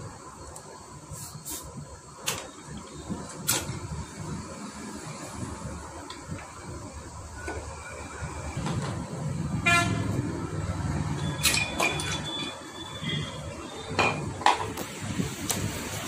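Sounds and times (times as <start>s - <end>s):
passing traffic rumble: 1.8s - 16.0s
vehicle horn toot: 9.6s - 10.1s, 11.3s - 13.9s.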